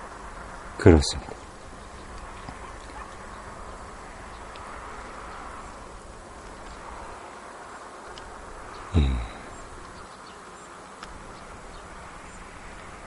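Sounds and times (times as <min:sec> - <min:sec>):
faint ticks: 0:04.3 - 0:05.8, 0:08.0 - 0:11.5
low buzzing hum: 0:07.9 - 0:13.0.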